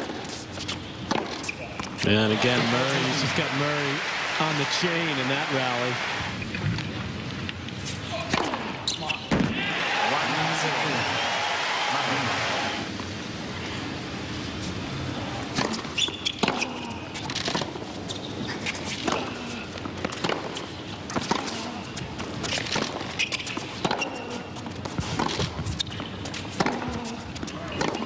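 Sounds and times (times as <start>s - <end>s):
shoes squeaking on court: 0.0s - 3.2s, 7.6s - 9.3s, 15.6s - 28.0s
tennis ball struck by rackets: 8.2s - 9.6s, 15.5s - 16.8s, 20.0s - 23.0s, 23.6s - 25.6s, 26.5s - 27.1s, 27.7s - 28.0s.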